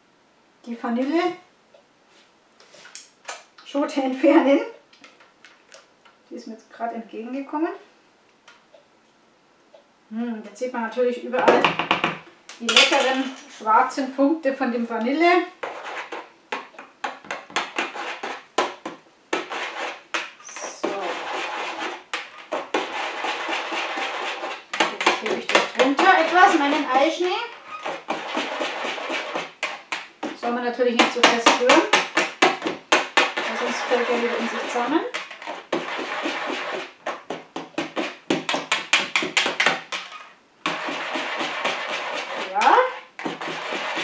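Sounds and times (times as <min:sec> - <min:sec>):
spatula scraping metal bowl: 0:12.6 - 0:14.0, 0:15.6 - 0:18.8, 0:19.4 - 0:44.0.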